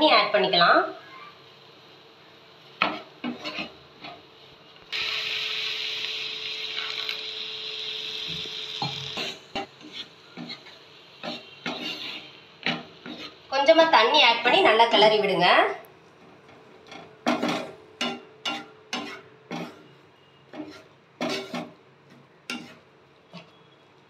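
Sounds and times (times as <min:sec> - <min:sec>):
spatula scraping frying pan: 0:02.8 - 0:04.2, 0:08.8 - 0:13.5, 0:16.8 - 0:23.6
water hissing in hot pan: 0:03.5 - 0:15.1.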